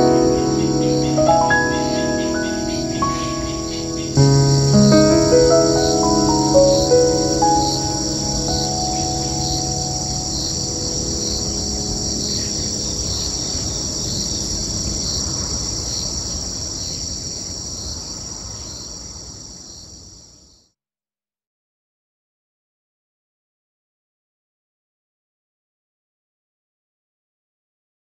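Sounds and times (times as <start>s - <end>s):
ringing music notes: 0.0s - 14.7s
insects chirring: 0.0s - 20.7s.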